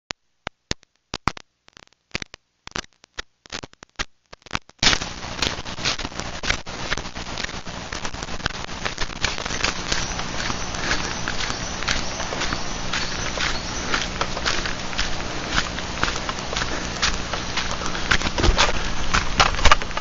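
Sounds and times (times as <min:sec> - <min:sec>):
footsteps on dry leaves: 0:04.8 - 0:20.0.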